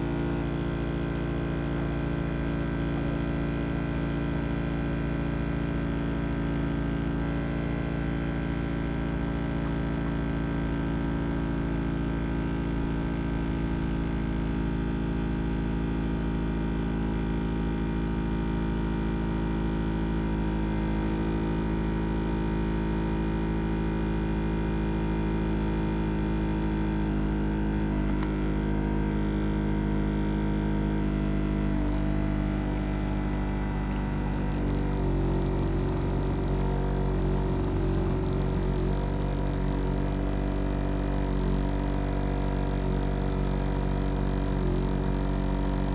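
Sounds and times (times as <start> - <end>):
machine humming: 31.0 - 45.9.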